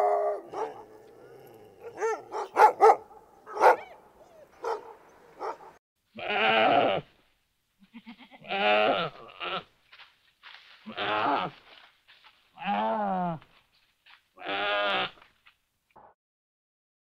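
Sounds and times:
dog barking: 0.0s - 1.1s, 1.8s - 5.8s
deer bleating: 6.2s - 7.1s, 7.8s - 9.7s, 10.9s - 11.6s, 12.6s - 13.4s, 14.4s - 15.2s.

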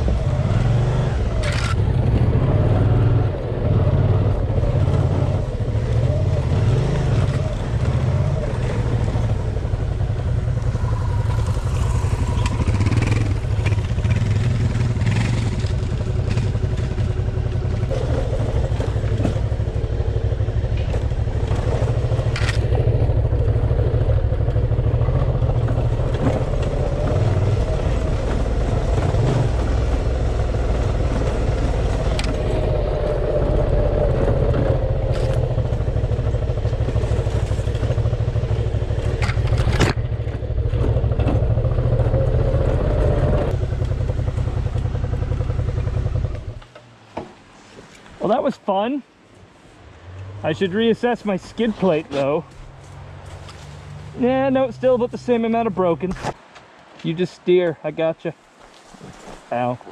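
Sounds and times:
motorcycle engine at low speed: 0.0s - 47.4s
motorcycle jolting over stones: 38.9s - 41.7s.

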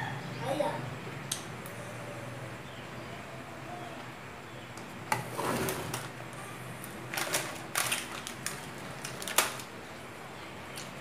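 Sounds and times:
plastic packet crinkling: 7.1s - 9.8s.

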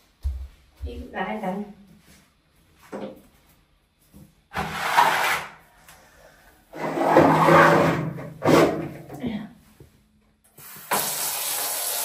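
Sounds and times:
plastic stool scraping on tiles: 4.5s - 5.6s, 6.7s - 9.0s.

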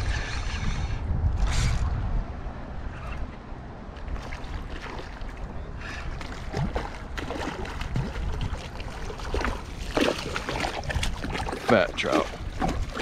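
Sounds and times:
water splashing around kayak: 3.9s - 13.0s.

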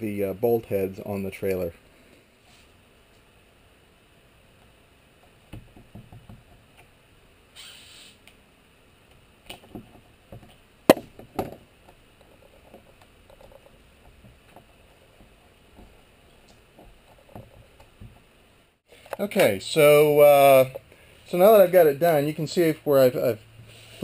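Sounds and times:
scraping hiss: 1.9s - 3.2s, 7.5s - 8.3s, 22.6s - 24.0s
sharp knocks: 9.5s - 11.6s.

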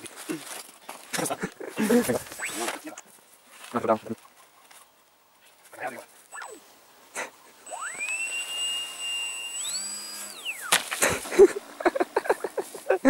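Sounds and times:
footsteps through dry grass: 0.0s - 6.4s, 12.2s - 13.0s
electric propeller whine: 6.3s - 12.9s.

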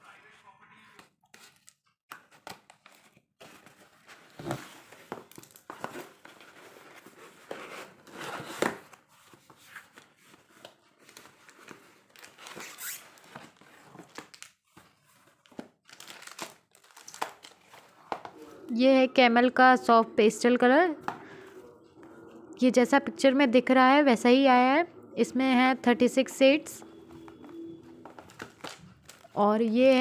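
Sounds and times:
cardboard rustling and tearing: 2.3s - 18.0s, 28.1s - 30.0s.

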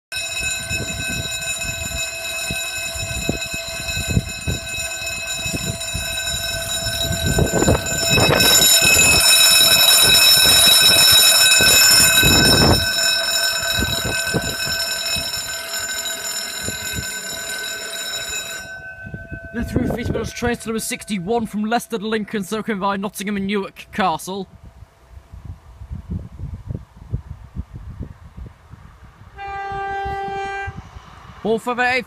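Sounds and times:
level crossing alarm bells: 0.1s - 23.8s.

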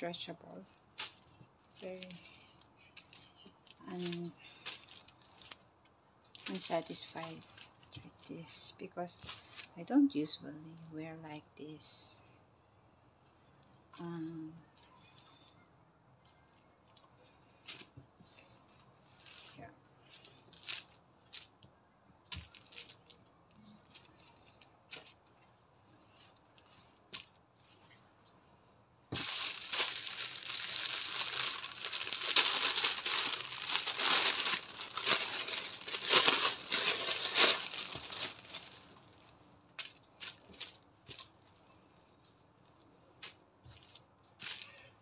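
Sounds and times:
plastic bag crinkling: 1.0s - 5.6s, 6.3s - 8.2s, 19.0s - 21.6s, 22.3s - 23.2s, 29.1s - 41.6s.

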